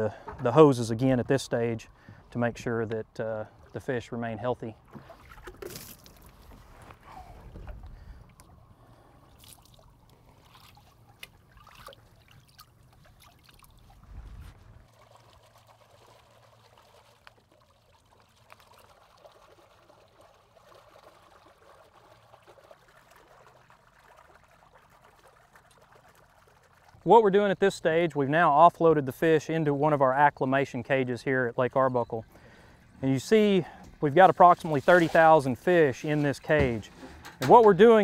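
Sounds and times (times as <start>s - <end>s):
water pouring and splashing: 4.8s - 27.8s, 32.8s - 38.0s.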